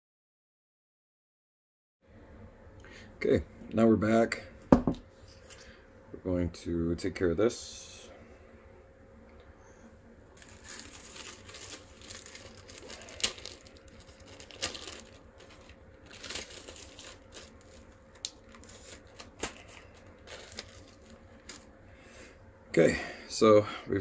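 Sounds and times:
crinkling and rustling: 10.4 - 21.7.

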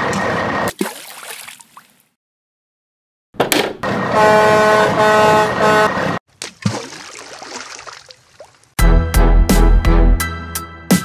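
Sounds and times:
vehicle horn honking: 4.1 - 6.1.

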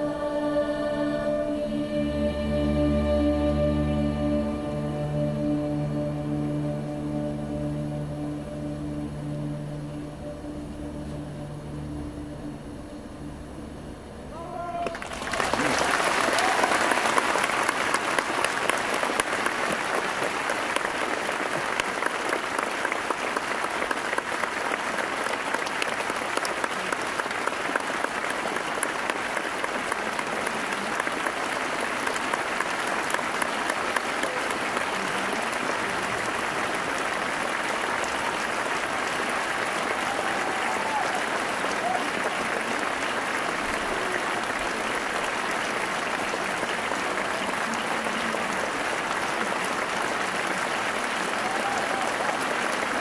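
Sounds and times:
music: 0.0 - 14.4
large audience applauding: 14.3 - 53.0.

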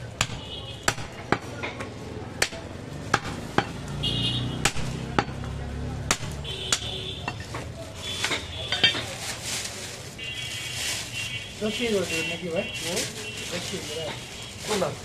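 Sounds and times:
knife chopping meat on wood block: 0.2 - 1.5, 2.4 - 3.8, 4.6 - 5.4, 6.0 - 6.9.

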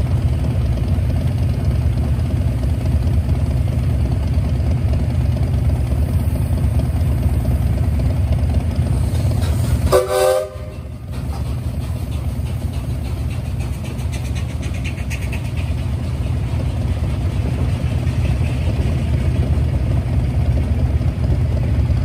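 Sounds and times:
steam locomotive whistle: 9.8 - 11.0.

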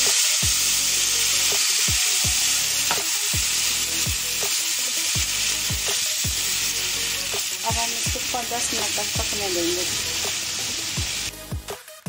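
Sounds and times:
water sizzling in a hot pan: 0.0 - 12.0.

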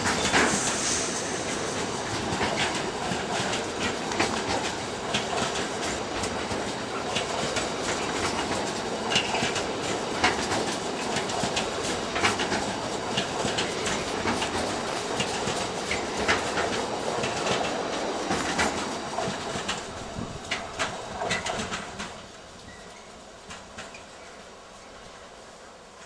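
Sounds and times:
steel wheels rumbling on rails: 0.0 - 26.0.

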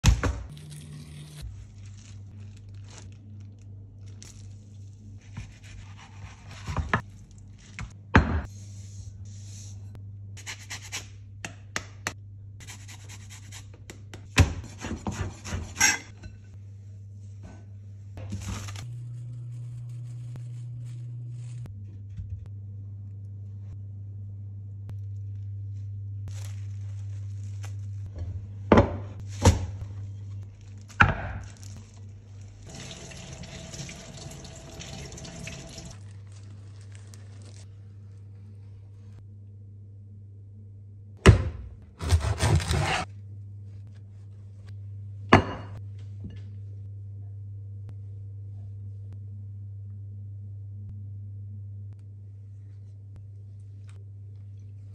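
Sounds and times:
plastic film crinkling: 0.5 - 5.2, 26.3 - 28.1, 30.2 - 32.7, 35.9 - 37.7
steady low hum: 0.5 - 32.7, 36.0 - 54.9
knife scraping cutting board: 14.6 - 16.1, 42.0 - 43.1
scraping on wooden cutting board: 42.0 - 43.1.

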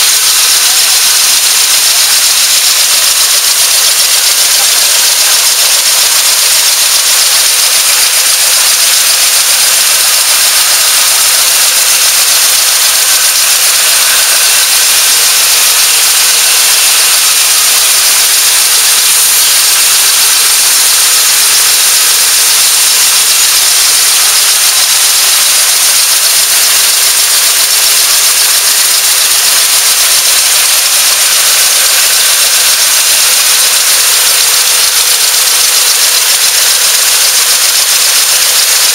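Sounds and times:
cigarette machine hissing: 0.0 - 38.9
steady high tone: 3.8 - 24.8.

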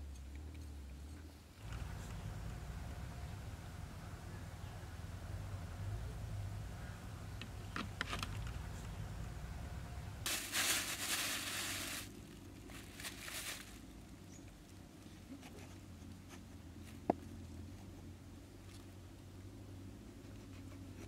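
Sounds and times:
plastic bag crinkling: 10.3 - 13.9.

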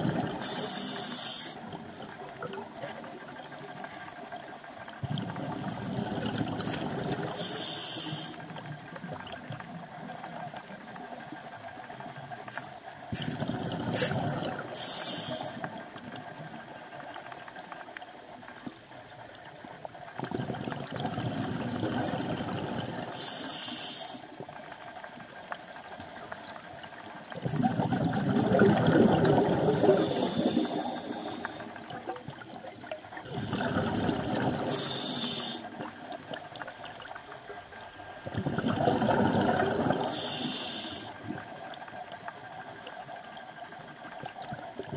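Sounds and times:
bubbling rumble: 0.0 - 0.6, 4.8 - 7.5, 13.1 - 15.0, 20.1 - 23.2, 26.0 - 40.2
high regulator hiss: 0.4 - 1.6, 7.4 - 8.4
diver breathing through regulator: 0.4 - 1.7, 7.2 - 8.4, 13.1 - 15.7, 22.8 - 24.2, 29.4 - 31.8, 34.6 - 35.7, 38.4 - 41.2.

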